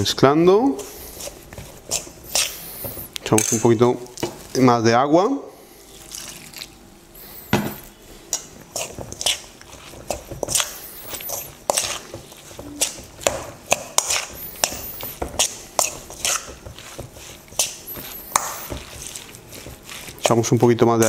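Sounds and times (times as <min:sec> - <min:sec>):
wet batter squelching: 0:00.6 - 0:03.2, 0:05.8 - 0:06.8, 0:08.4 - 0:21.0
spoon scraping metal bowl: 0:00.8 - 0:03.6, 0:08.7 - 0:20.5.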